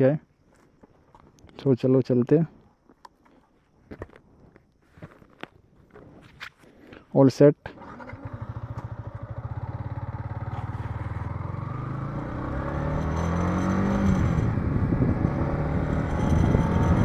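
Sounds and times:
motorcycle engine accelerating: 7.8s - 17.0s.

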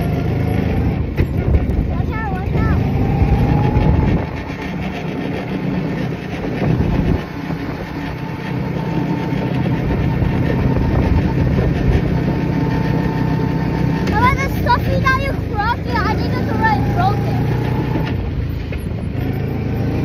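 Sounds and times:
car engine: 0.0s - 20.0s
road rumble: 0.0s - 20.0s
wind rushing: 1.4s - 8.9s.

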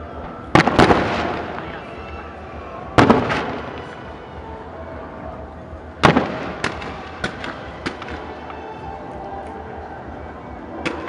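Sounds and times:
sharp firework cracks: 0.6s - 1.8s, 3.0s - 3.9s, 6.0s - 8.3s.

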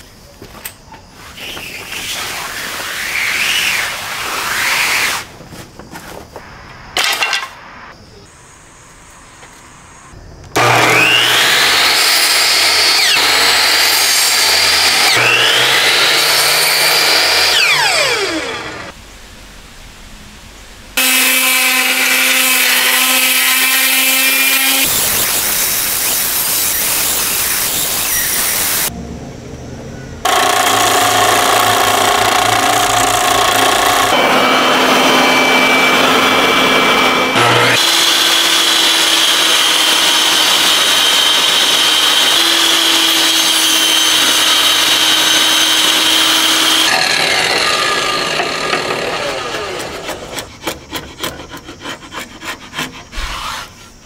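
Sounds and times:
power saws and sanders whirring: 1.2s - 5.4s, 10.5s - 19.0s, 21.0s - 29.0s, 30.2s - 54.0s.

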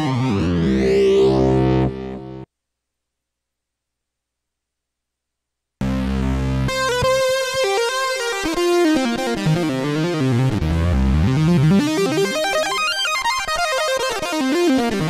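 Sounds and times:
deep synthesizer bass notes: 0.0s - 2.5s, 5.8s - 7.3s, 9.5s - 12.4s.

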